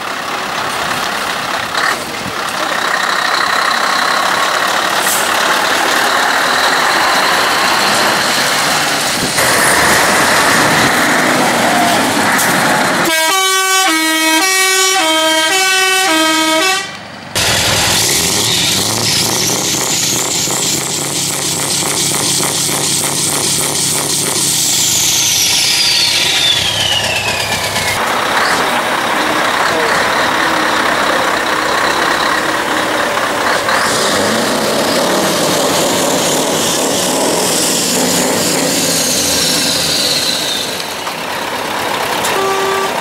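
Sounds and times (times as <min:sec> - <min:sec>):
diesel engine running: 0:00.0 - 0:43.0
two-note air horn: 0:13.1 - 0:17.0, 0:42.2 - 0:43.0.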